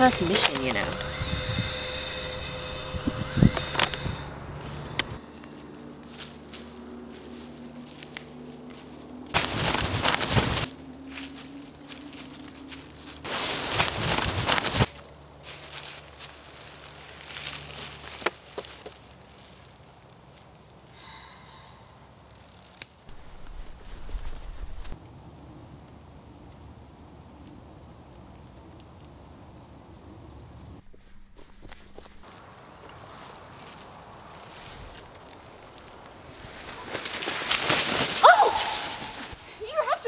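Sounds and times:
faint low drone: 0.0 - 9.3
footsteps crunching dry leaves: 0.0 - 20.9, 22.3 - 25.0, 30.8 - 40.0.

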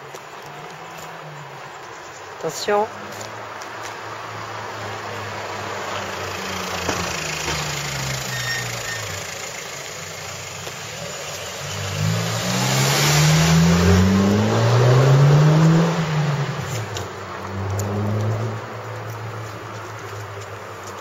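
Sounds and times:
tyre hiss on road: 3.0 - 14.1
car engine accelerating: 4.0 - 21.0.

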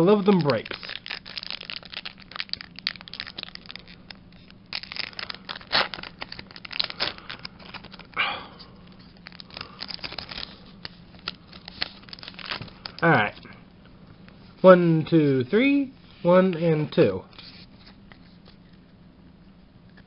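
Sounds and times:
foil wrapper crinkling: 0.0 - 8.2, 8.8 - 13.4
foil wrapper tearing: 0.0 - 8.2, 8.9 - 13.0.

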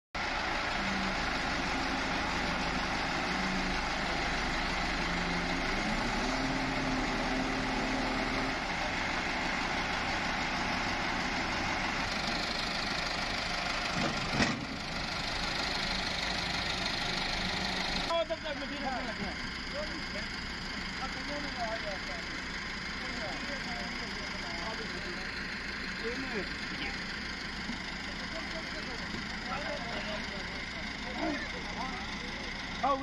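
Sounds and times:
diesel engines idling: 0.2 - 33.0
sharp clunk: 14.0 - 14.8.

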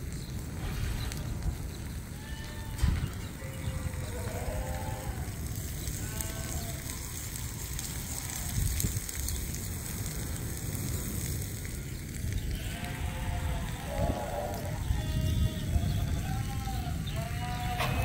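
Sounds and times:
sheep bleating: 2.1 - 7.0, 12.5 - 18.0.

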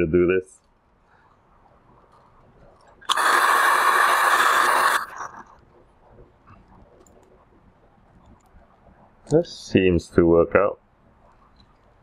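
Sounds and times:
hairdryer blowing: 3.1 - 5.2.

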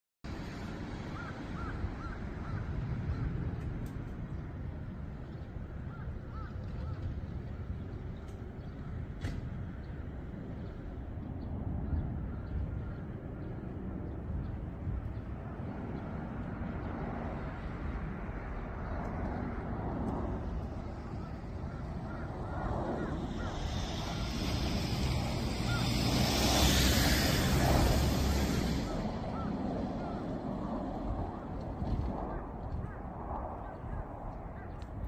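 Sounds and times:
jet engines rumbling: 0.3 - 35.0
rising jet hiss: 22.0 - 30.2.

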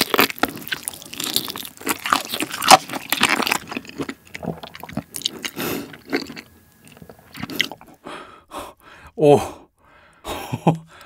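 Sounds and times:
close chewing: 0.0 - 8.0.

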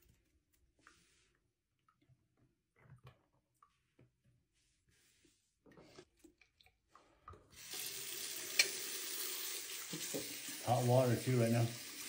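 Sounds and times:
tap water running into sink: 7.5 - 12.0.

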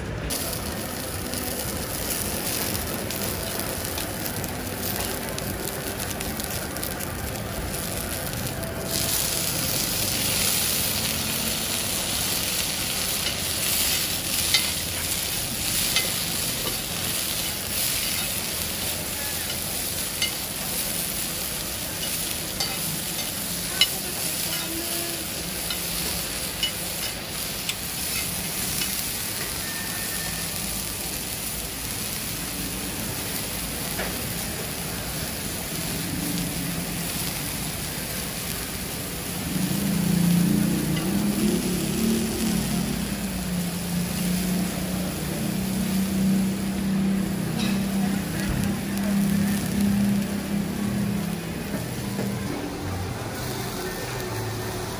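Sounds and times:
bean sprouts sizzling in oil: 0.3 - 54.9
metal spatula clicking and scraping: 22.0 - 24.7.

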